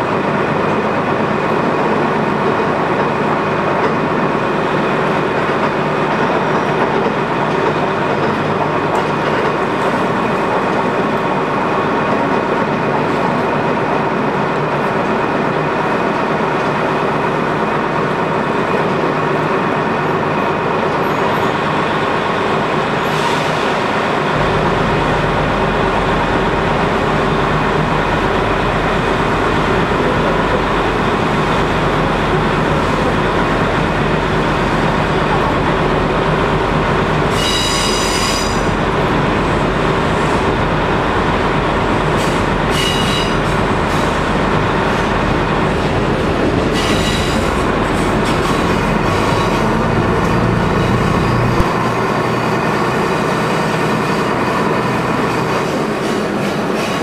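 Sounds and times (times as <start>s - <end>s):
train engine and wheels drone: 0.0s - 57.0s
high wheel squeal: 37.3s - 38.8s, 42.2s - 44.0s, 46.7s - 47.7s.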